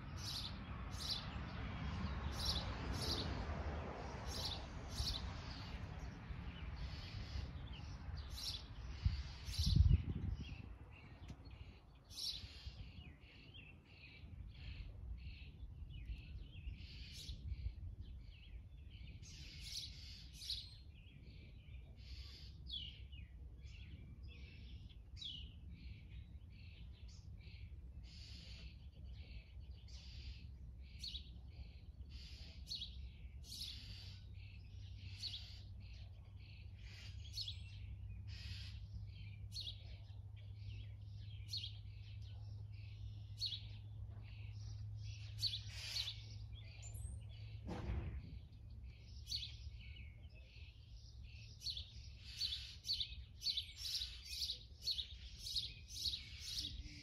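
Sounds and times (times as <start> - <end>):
birds chirping: 0.0 - 3.4, 4.1 - 57.0.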